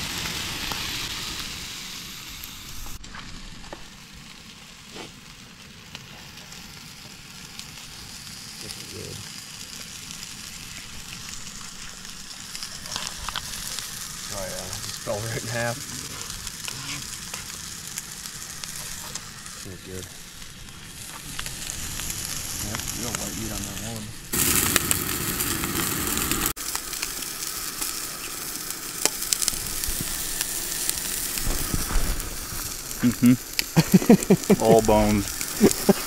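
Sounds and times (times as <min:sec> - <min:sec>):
fish sizzling in a pan: 0:00.0 - 0:36.0.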